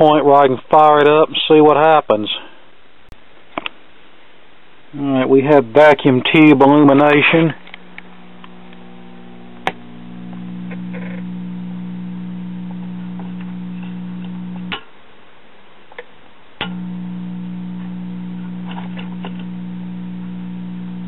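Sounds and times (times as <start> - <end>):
radio speaker low hum: 4.9 - 14.8, 16.6 - 21.0.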